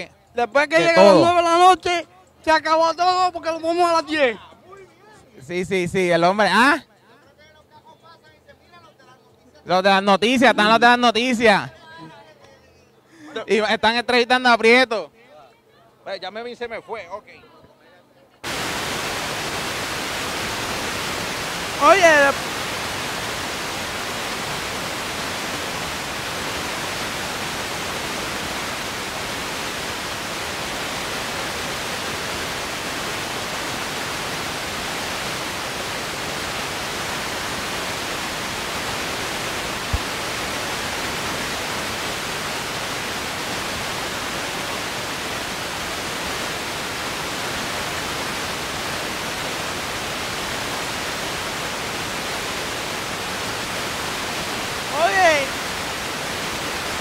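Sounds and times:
static hiss: 0.0s - 2.0s, 18.4s - 57.0s.

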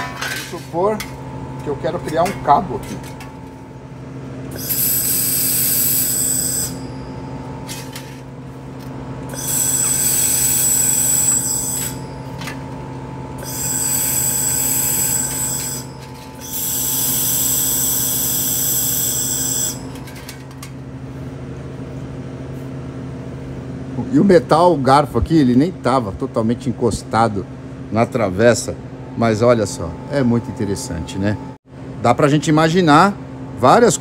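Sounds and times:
welding machine hum: 0.0s - 21.2s
laser welder hissing buzz: 4.5s - 7.0s, 9.3s - 12.2s, 13.4s - 19.9s.

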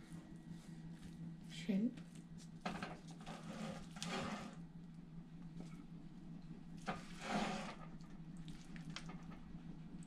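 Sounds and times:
spatula scraping rice in pan: 7.0s - 7.8s.

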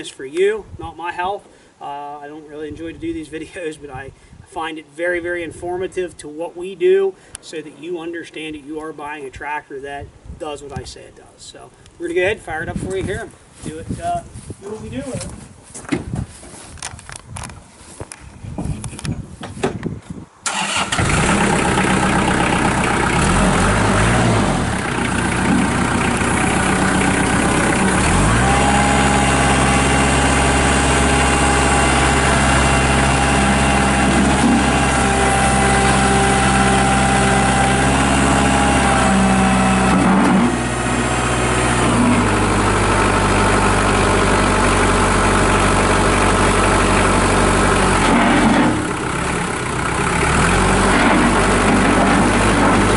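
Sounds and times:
tractor diesel engine running: 20.5s - 52.9s.

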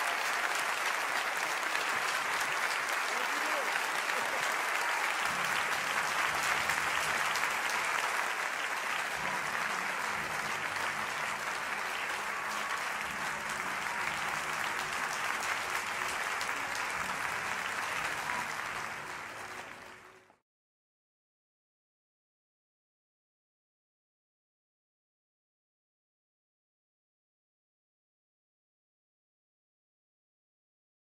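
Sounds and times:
audience applauding: 0.0s - 20.4s.

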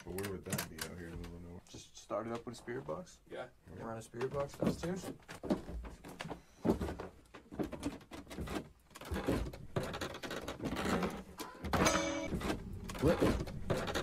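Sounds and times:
footsteps on wooden stairs: 4.2s - 14.0s.

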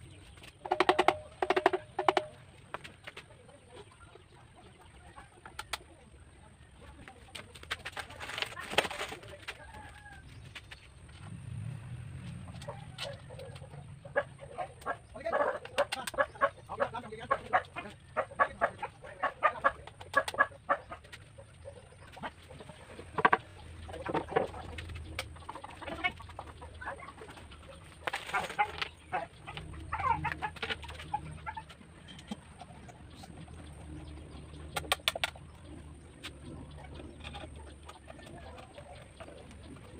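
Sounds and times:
chickens clucking: 0.0s - 11.1s, 12.3s - 39.9s
clamps knocking on plywood boards: 0.6s - 2.4s.

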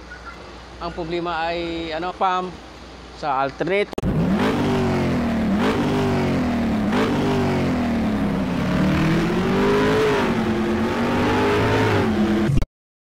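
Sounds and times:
car engine revving: 4.0s - 12.6s.

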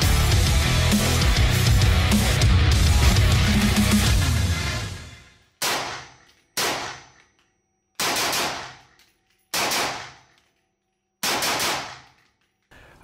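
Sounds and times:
rifle shots: 5.6s - 7.2s, 8.0s - 10.3s, 11.2s - 12.2s.

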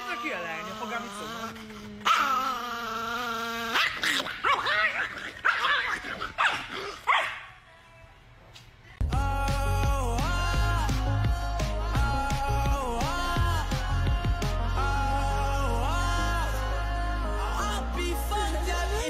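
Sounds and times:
man howling: 0.0s - 4.0s
small dog howling: 0.0s - 7.3s
small dog yapping and barking: 1.7s - 7.5s
music: 9.0s - 19.0s.

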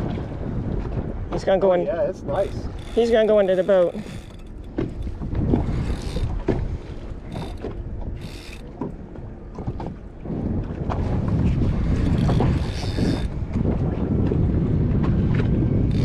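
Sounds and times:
wind buffeting microphone: 0.0s - 16.0s
fishing reel clicking: 2.3s - 5.2s, 5.8s - 6.3s, 7.3s - 8.7s, 12.0s - 13.3s.

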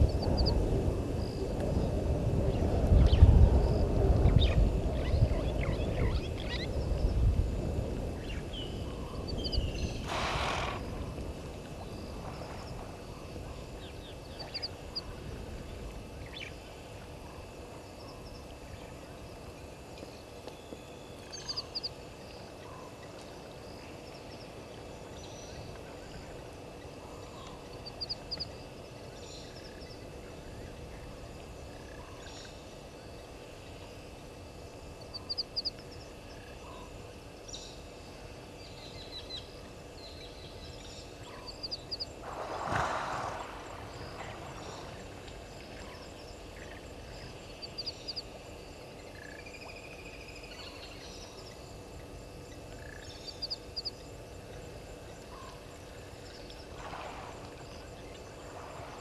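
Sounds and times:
low rumbling noise: 0.0s - 20.4s, 21.1s - 59.0s.

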